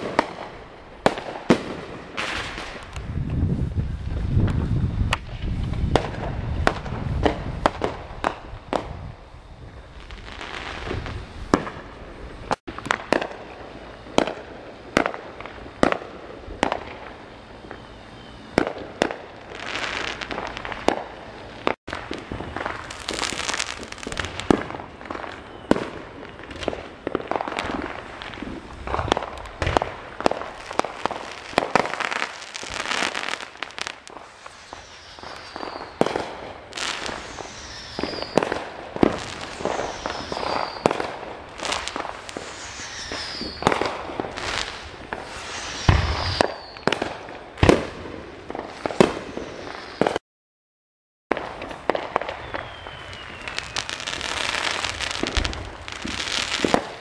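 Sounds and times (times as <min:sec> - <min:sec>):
fireworks bangs: 0:00.0 - 0:50.2, 0:51.3 - 0:57.0
fireworks crackling: 0:00.0 - 0:50.2, 0:51.3 - 0:57.0
falling whistles: 0:17.4 - 0:18.6, 0:25.1 - 0:26.6, 0:34.2 - 0:47.0, 0:52.2 - 0:55.5.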